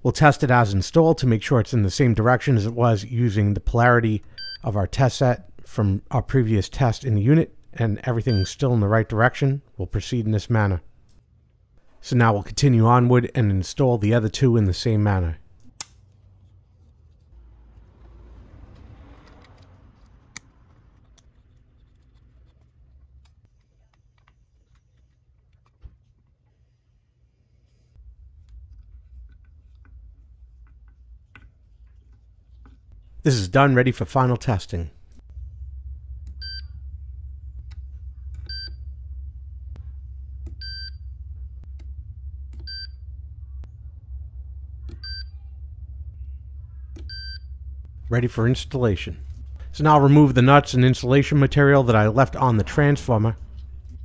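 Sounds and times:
faint low hum: 0:00.0 - 0:54.0
short electronic beeps: 0:45.0 - 0:45.3, 0:47.1 - 0:47.5.

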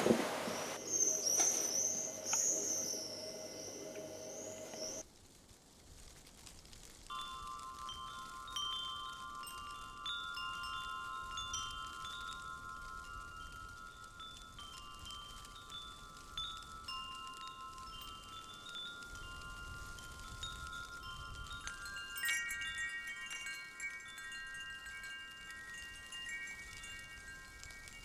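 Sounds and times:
chime tones ringing: 0:07.1 - 0:28.0.

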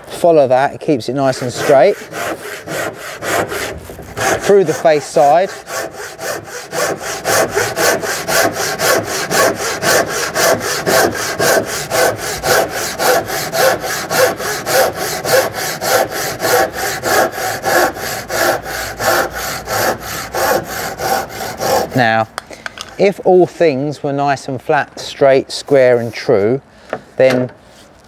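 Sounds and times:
handsaw cutting wood: 0:01.1 - 0:22.2.

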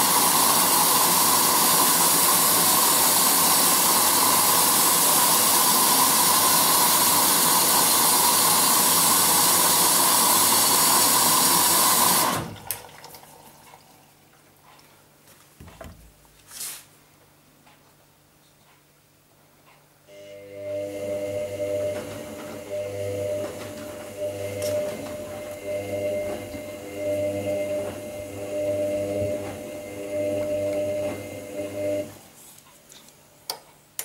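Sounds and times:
washing machine water rushing: 0:00.0 - 0:14.3, 0:20.4 - 0:32.2.

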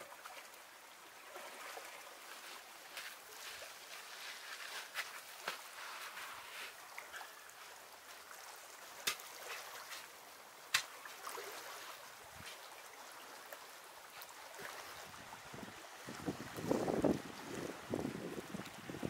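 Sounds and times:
water trickling: 0:00.0 - 0:19.0.

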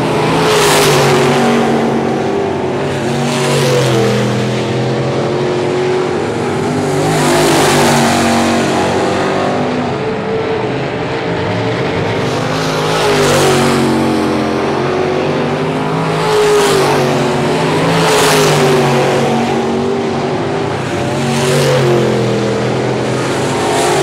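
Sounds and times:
race car engines revving: 0:00.0 - 0:24.0.

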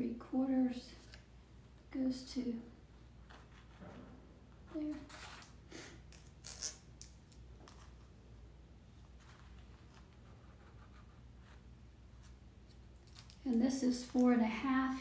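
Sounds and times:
pencil scratching on canvas: 0:10.2 - 0:11.6.

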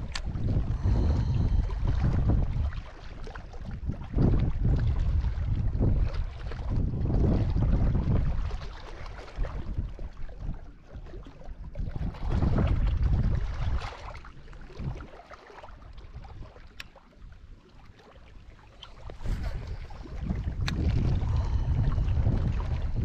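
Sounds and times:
wind buffeting microphone: 0:00.0 - 0:15.1, 0:15.8 - 0:17.6, 0:18.4 - 0:23.0.

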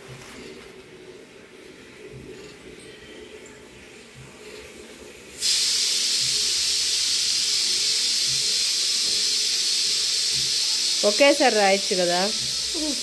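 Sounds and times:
loud steady hiss: 0:05.4 - 0:13.0.

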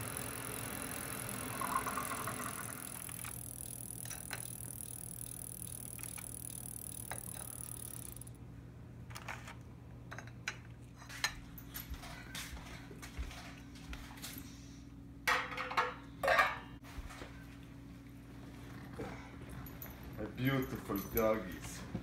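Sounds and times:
coffee maker brewing hiss: 0:00.0 - 0:08.3.

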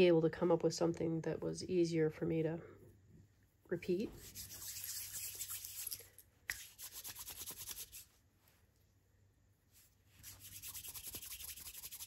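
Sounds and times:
hands rubbing clay: 0:04.2 - 0:08.7, 0:09.8 - 0:12.0.

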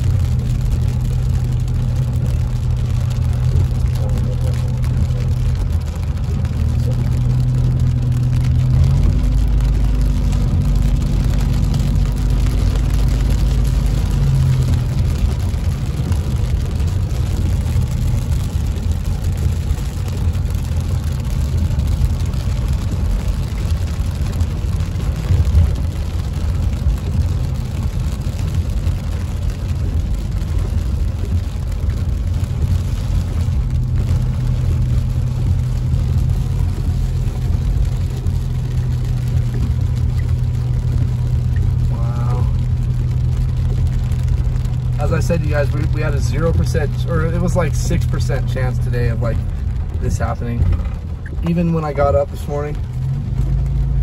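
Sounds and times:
car engine hum: 0:00.0 - 0:54.0
tyre and rain hiss: 0:29.8 - 0:53.9.

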